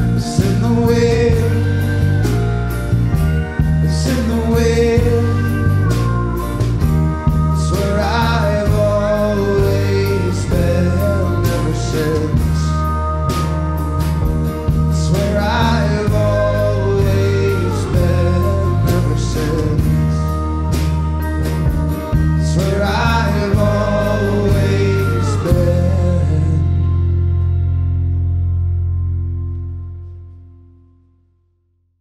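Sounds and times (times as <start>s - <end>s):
people singing: 0.0s - 2.4s, 3.8s - 6.1s, 7.6s - 12.9s, 14.8s - 20.4s, 22.3s - 26.8s
drums: 0.0s - 30.2s
acoustic guitar: 0.0s - 31.1s
keyboard: 0.0s - 31.6s.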